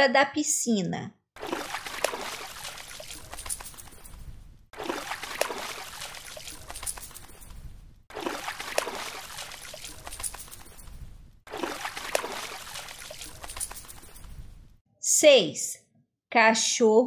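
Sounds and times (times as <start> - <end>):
dog shaking off water spray: 1.4 - 4.2, 4.8 - 7.5, 8.1 - 10.9, 11.5 - 14.3.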